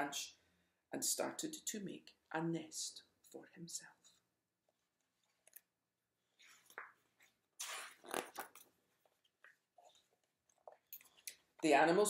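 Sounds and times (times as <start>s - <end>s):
book pages turning: 6.3s - 11.2s.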